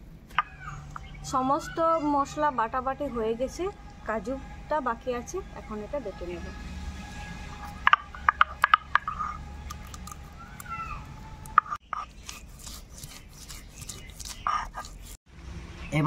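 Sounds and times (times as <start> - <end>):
nuts cracking: 7.9 - 15.0
stone rasping over stone: 11.6 - 15.2.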